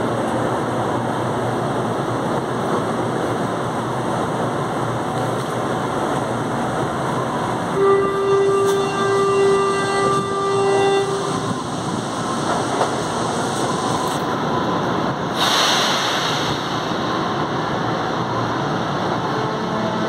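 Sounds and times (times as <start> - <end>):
warning tone: 7.8 - 11.6
hissing air burst: 15.3 - 17.1.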